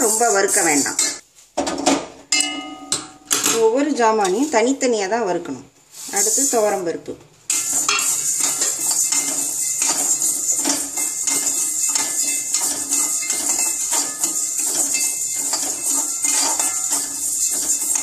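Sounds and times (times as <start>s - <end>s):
lentils rattling in metal pan: 7.5s - 18.0s.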